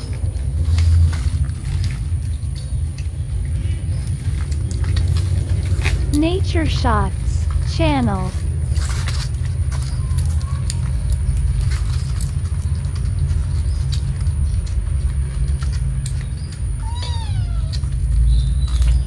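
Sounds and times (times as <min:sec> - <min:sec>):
cats eating from steel bowl: 0:00.0 - 0:19.0
low rumble: 0:00.0 - 0:19.0
cat meowing: 0:16.8 - 0:18.0.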